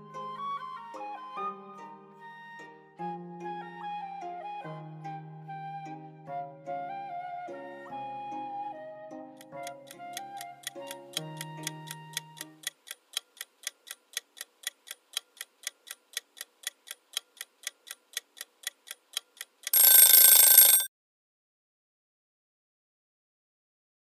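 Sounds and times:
soft flute melody: 0:00.0 - 0:12.6
clock ticking: 0:09.4 - 0:20.9
ringing alarm: 0:19.7 - 0:20.9.

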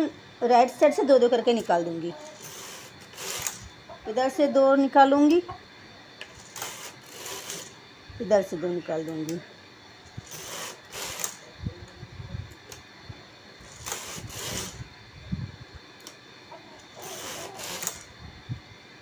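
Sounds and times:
knitting machine carriage sliding: 0:02.2 - 0:03.7, 0:06.2 - 0:07.8, 0:10.2 - 0:11.4, 0:13.6 - 0:14.8, 0:17.0 - 0:18.1.

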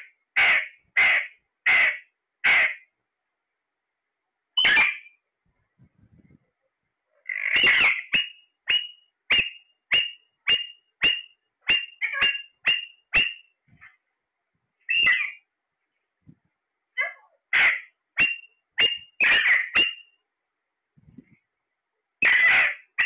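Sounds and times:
parakeet calling: 0:00.0 - 0:02.9, 0:04.6 - 0:05.2, 0:07.2 - 0:13.5, 0:14.9 - 0:15.5, 0:17.0 - 0:20.2, 0:22.2 - 0:23.0.

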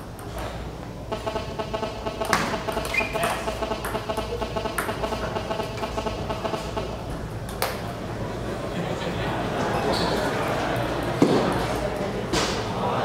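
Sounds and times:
steady hum: 0:00.0 - 0:09.6
table tennis ball clicks: 0:01.1 - 0:07.8
shoe squeak: 0:02.8 - 0:03.5.

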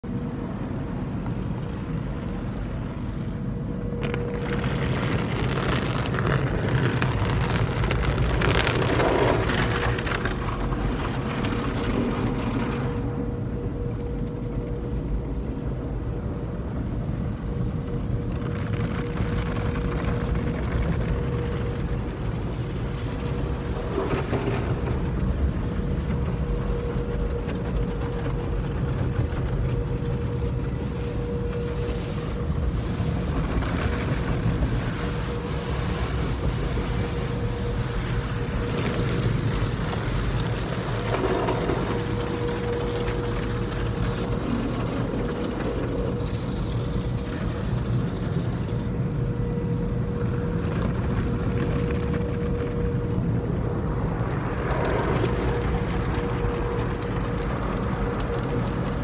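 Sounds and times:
faint steady hum: 0:00.0 - 0:59.0
steady low rumble: 0:00.0 - 0:59.0
water spraying over windshield: 0:04.3 - 0:13.1, 0:30.7 - 0:49.0.

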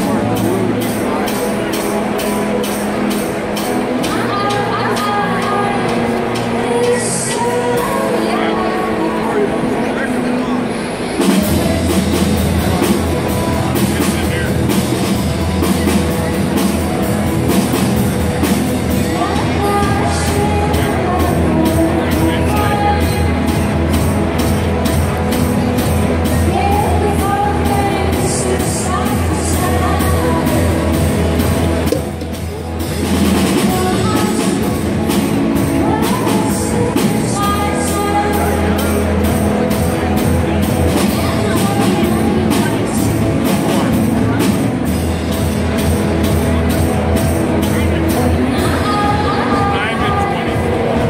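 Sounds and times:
held bass line: 0:00.0 - 0:51.0
rock band playing: 0:00.0 - 0:51.0
person singing: 0:04.0 - 0:14.2, 0:19.0 - 0:24.0, 0:26.2 - 0:31.9, 0:33.1 - 0:44.6
drum and cymbal hits: 0:11.2 - 0:51.0.

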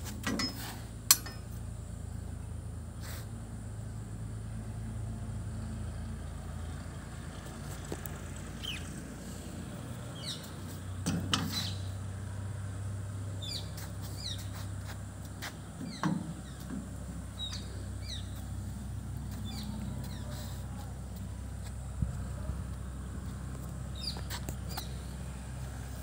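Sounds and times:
steady low hum: 0:00.0 - 0:26.0
small birds chirping: 0:05.6 - 0:12.1, 0:13.3 - 0:25.9.

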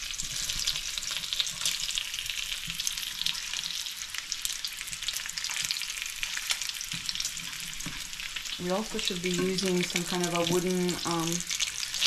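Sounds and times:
fork scraping a pan: 0:00.0 - 0:03.8, 0:05.1 - 0:10.5
bacon sizzling in a frying pan: 0:00.0 - 0:12.0.

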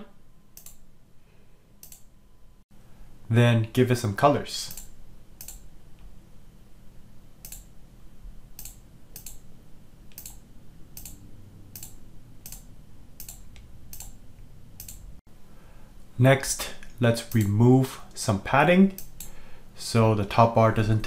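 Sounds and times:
faint low hum: 0:00.0 - 0:21.0
computer clicking: 0:00.6 - 0:00.8, 0:01.8 - 0:02.1, 0:04.7 - 0:05.7, 0:07.4 - 0:07.7, 0:08.6 - 0:09.4, 0:10.1 - 0:14.2, 0:14.8 - 0:15.0, 0:17.2 - 0:17.6, 0:18.9 - 0:19.4.

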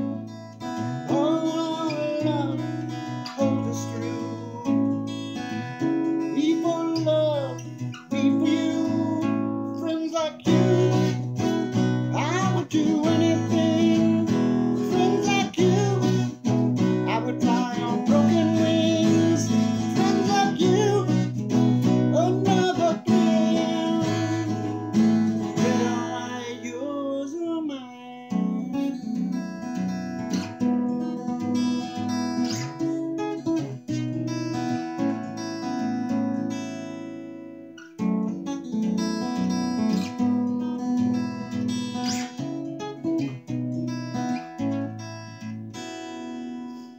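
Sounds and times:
acoustic guitar: 0:00.0 - 0:46.9
man singing: 0:00.9 - 0:29.2.

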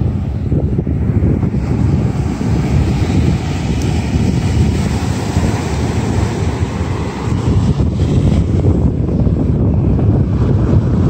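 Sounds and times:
surf on beach: 0:00.0 - 0:11.0
wind buffeting microphone: 0:00.0 - 0:11.0.

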